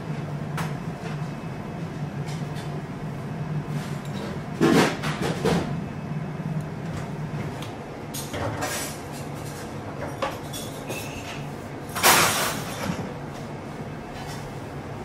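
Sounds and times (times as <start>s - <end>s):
steady low hum: 0.0s - 15.0s
utensils and dishes clinking: 8.1s - 13.1s.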